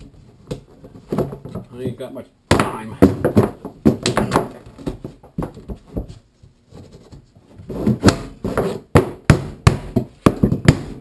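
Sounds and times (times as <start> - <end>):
mallet striking pvc pipe: 7.9 - 11.0.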